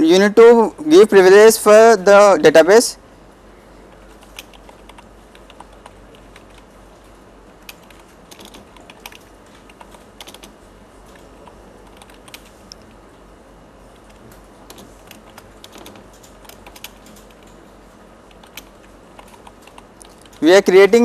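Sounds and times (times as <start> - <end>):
steady low hum: 0.0 - 21.0
keyboard typing: 3.9 - 12.9, 13.9 - 17.6, 18.2 - 20.6.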